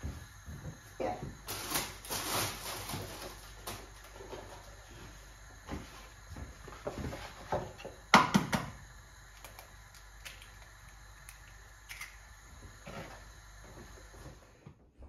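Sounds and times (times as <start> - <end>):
eggs and carton knocking: 7.5 - 8.7.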